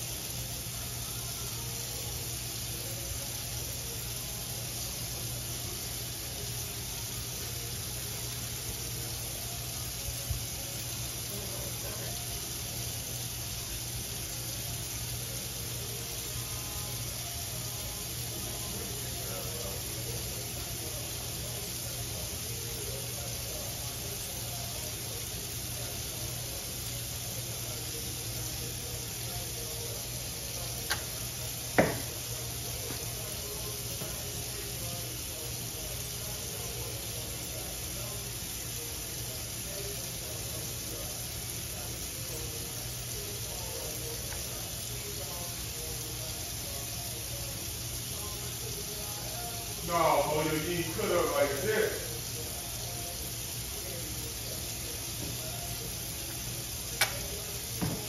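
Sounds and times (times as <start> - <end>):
brief thump: 31.8 - 32.1, 57.8 - 58.0.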